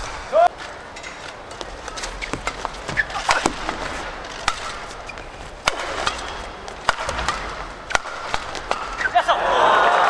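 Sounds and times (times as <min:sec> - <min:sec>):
rackets striking shuttlecock: 0:00.0 - 0:09.2
shoe squeaks on court: 0:02.0 - 0:03.5, 0:04.9 - 0:05.5.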